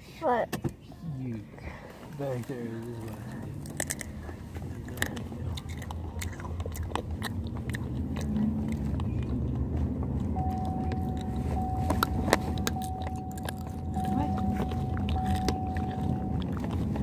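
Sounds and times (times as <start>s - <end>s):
crunching and chewing chips: 2.2s - 17.0s
car cabin rumble: 4.2s - 17.0s
steady high tone: 10.4s - 17.0s.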